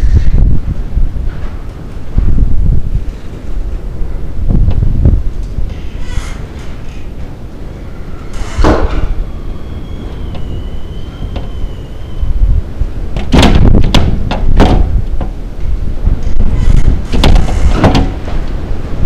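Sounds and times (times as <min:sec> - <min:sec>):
wind rumble on microphone: 0:00.0 - 0:19.0
faint thin whistling tone: 0:09.0 - 0:12.5
sharp knocks or bangs: 0:13.2 - 0:15.3.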